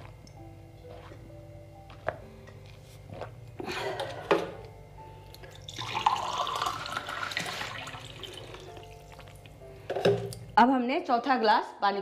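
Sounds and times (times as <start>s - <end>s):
water pouring into a glass: 5.5s - 9.4s.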